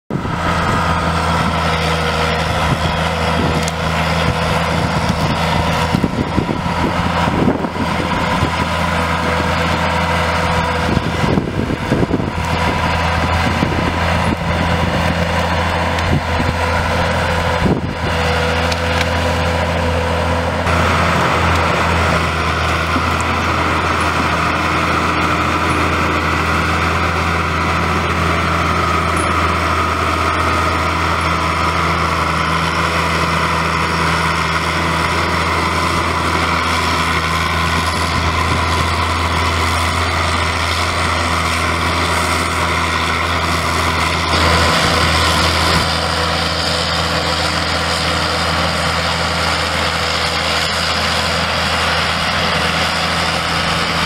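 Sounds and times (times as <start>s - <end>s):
constant machine whine: 0.1s - 54.0s
diesel engine drone: 0.1s - 54.0s
trees cracking and snapping: 11.9s - 24.9s.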